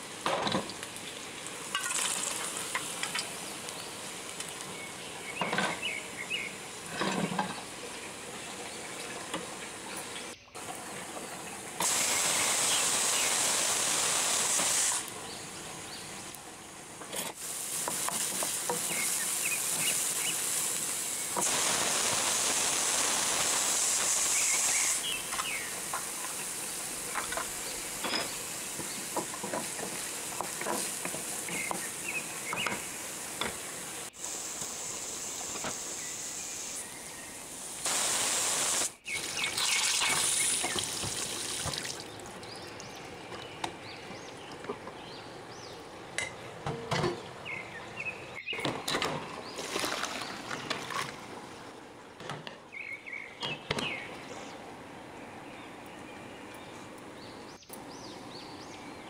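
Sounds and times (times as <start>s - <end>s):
onions sizzling in oil: 0.0s - 6.9s, 11.8s - 16.3s, 17.3s - 42.0s.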